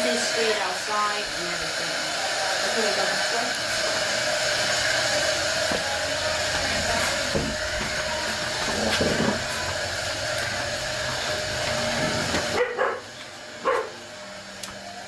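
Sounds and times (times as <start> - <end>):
whirring machine hum: 0.0 - 15.0
dog barking: 12.5 - 14.0.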